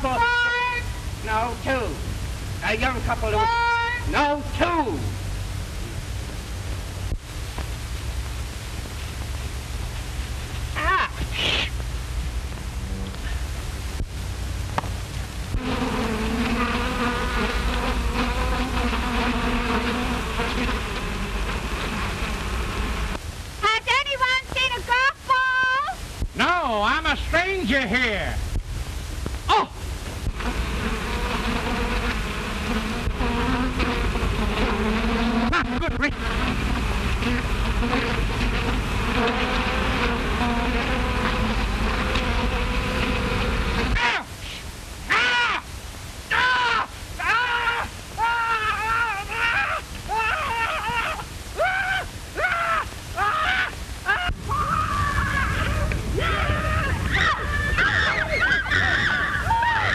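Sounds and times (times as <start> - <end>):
bees buzzing: 14.8 - 23.2, 30.2 - 44.0.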